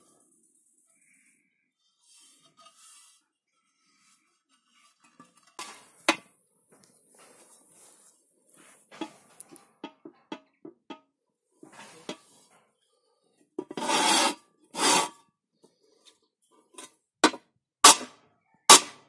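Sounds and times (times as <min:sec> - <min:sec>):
metal disc scraping on plate: 0:13.6 - 0:15.2.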